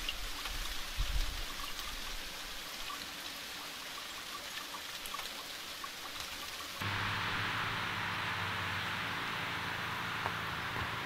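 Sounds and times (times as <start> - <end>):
rain falling on leaves: 0.0 - 11.0.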